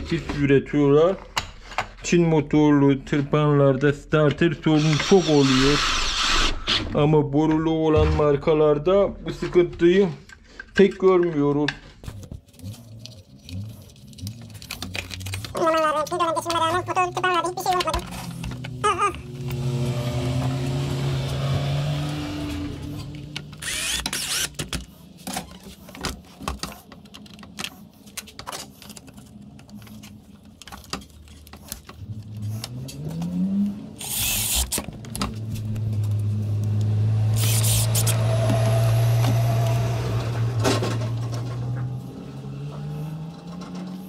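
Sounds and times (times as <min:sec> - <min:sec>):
metal and plastic parts clicking: 0:10.2 - 0:18.8.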